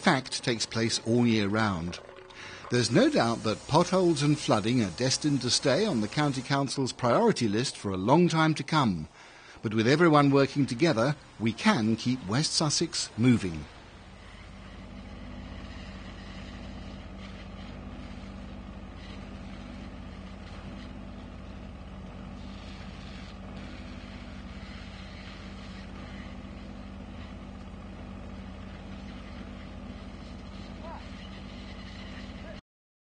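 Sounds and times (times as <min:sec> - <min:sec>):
diesel engine droning: 0:09.7 - 0:32.6.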